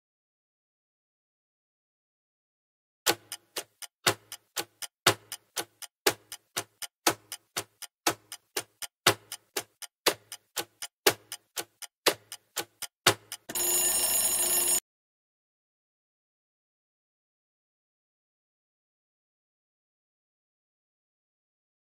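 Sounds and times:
clock ticking: 3.1s - 14.8s
ringing alarm bell: 13.5s - 14.8s.

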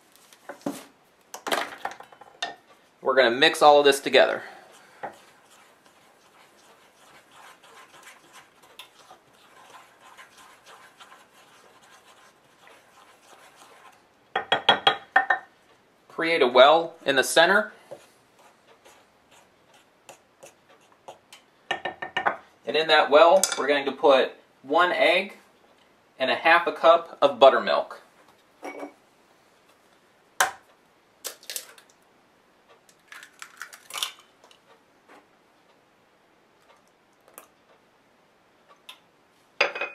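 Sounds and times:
utensil scraping in mixing bowl: 3.2s - 14.1s, 17.0s - 21.4s
eggshell crackling: 3.6s - 14.2s, 31.2s - 32.0s, 32.8s - 34.6s.

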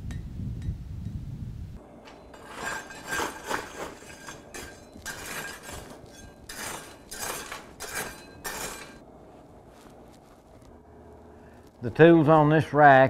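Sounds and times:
hammer striking iron anvil: 2.0s - 9.0s.

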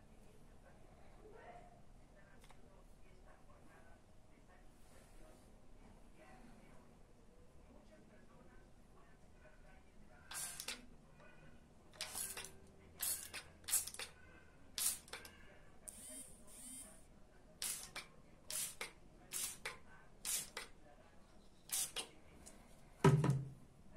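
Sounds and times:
spray bottle hissing squirts: 10.3s - 10.8s, 12.0s - 14.1s, 14.8s - 15.2s, 17.6s - 20.7s, 21.7s - 22.1s.

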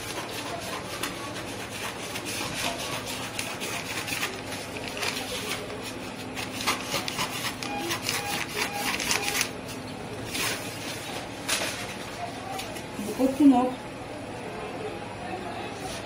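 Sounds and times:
paper rustling and crinkling: 0.0s - 9.5s, 10.3s - 12.9s
scissors snipping paper: 0.0s - 9.5s.

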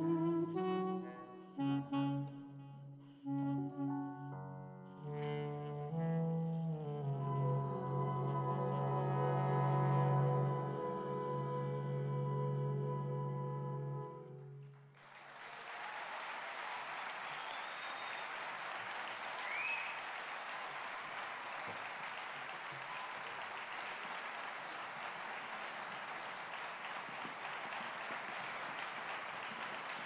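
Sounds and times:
audience applauding: 14.6s - 30.0s.

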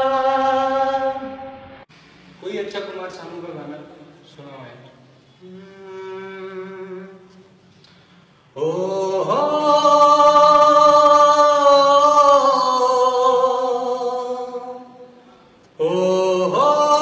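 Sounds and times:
man singing unaccompanied: 8.6s - 15.0s, 15.8s - 17.0s.

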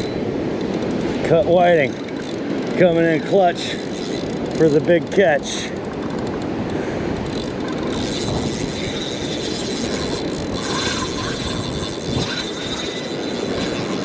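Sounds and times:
surf washing up beach: 0.0s - 10.6s
wind buffeting microphone: 0.0s - 14.0s.

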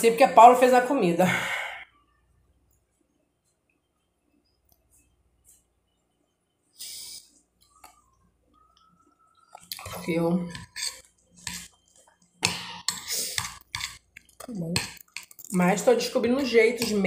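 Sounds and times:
fork scraping a plate: 9.6s - 15.4s.

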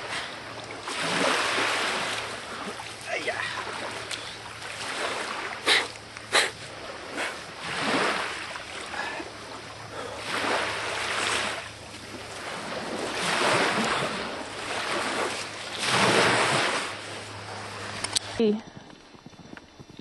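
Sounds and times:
lake water splashing: 0.0s - 18.4s.

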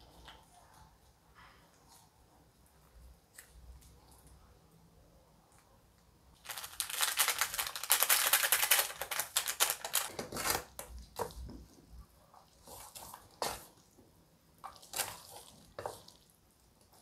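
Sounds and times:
plastic sachet crinkling: 6.4s - 10.9s.

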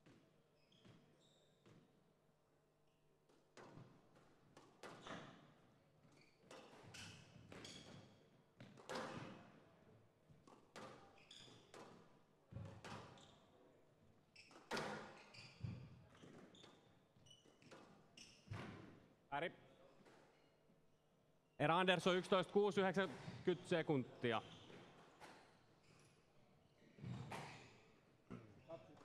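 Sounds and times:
court shoes squeaking: 0.0s - 1.8s, 4.8s - 5.4s, 6.0s - 9.4s, 10.5s - 13.5s, 14.3s - 19.0s, 24.2s - 26.2s, 26.8s - 29.0s
squash ball hitting rackets and walls: 3.5s - 5.7s, 6.4s - 9.6s, 10.4s - 13.2s, 14.5s - 16.5s, 17.5s - 19.0s.

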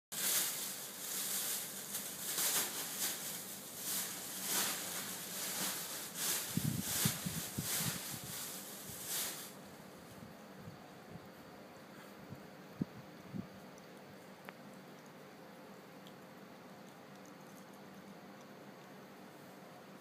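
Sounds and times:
cat crunching vegetable stalks: 13.5s - 19.0s.

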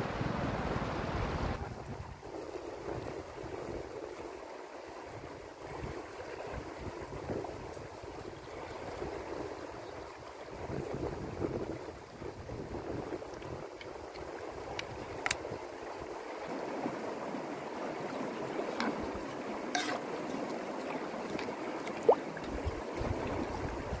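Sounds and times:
river rushing: 0.0s - 1.6s, 14.0s - 24.0s.

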